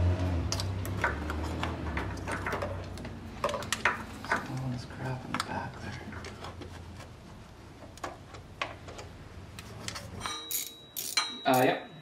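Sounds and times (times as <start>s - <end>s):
metal tools clinking: 9.9s - 12.0s.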